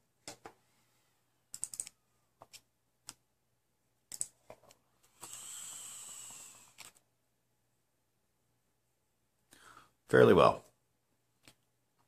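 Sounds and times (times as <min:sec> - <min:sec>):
airy hiss of vape draw: 0:05.1 - 0:06.9.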